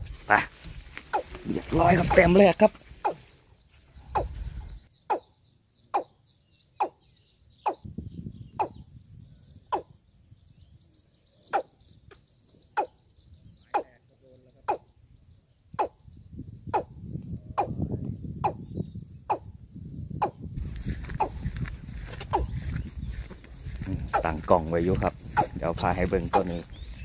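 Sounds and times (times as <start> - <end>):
high insect trill: 0.0 - 7.0, 7.7 - 27.0
bird calling: 0.0 - 7.9, 11.2 - 15.0, 20.2 - 27.0.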